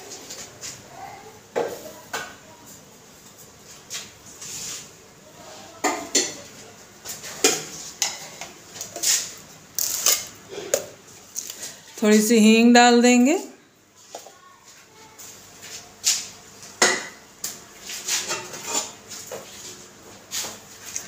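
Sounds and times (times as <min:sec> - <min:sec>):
kitchen utensils clinking: 0:05.8 - 0:06.6, 0:07.2 - 0:11.0, 0:18.1 - 0:19.1.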